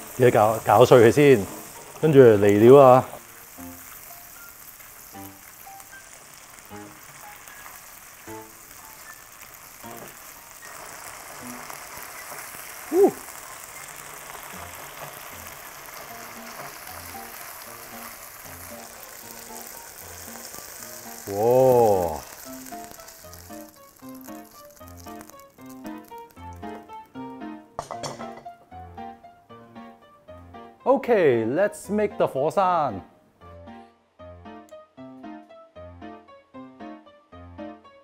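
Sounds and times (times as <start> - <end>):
soft background music: 0.0 - 12.4, 14.5 - 38.0
sauce sizzling in a wok: 0.0 - 29.0.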